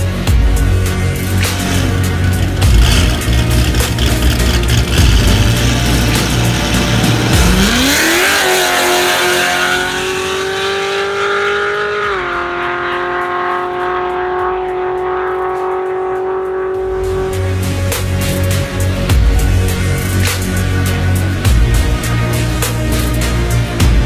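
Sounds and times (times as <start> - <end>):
music: 0.0 - 24.0
car engine revving: 0.9 - 21.1.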